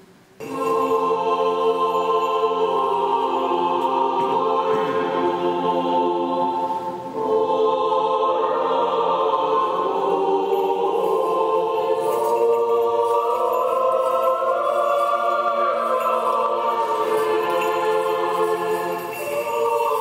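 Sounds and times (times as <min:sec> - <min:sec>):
church choir chanting: 0:00.4 - 0:20.0.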